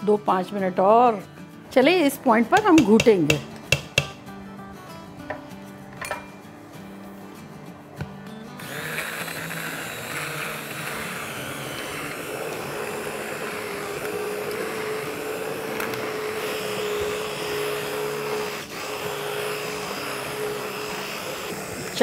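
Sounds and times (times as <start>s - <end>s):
immersion blender motor whine: 8.6s - 22.0s.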